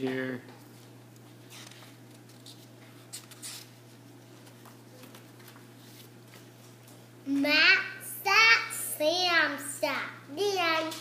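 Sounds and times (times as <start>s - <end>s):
steady low hum: 0.0s - 11.0s
book pages rustling: 0.7s - 7.0s.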